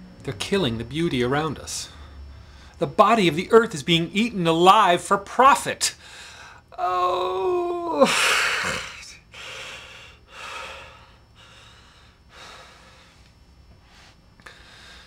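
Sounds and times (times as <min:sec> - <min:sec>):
man crying and sobbing: 0:06.7 - 0:10.9.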